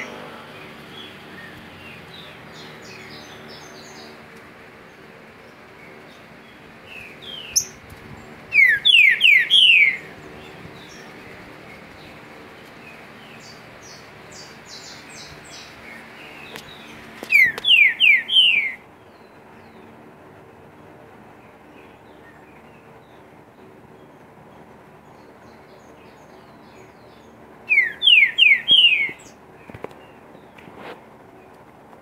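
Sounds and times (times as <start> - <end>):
bird singing falling notes: 12.8 - 18.8, 27.7 - 30.6.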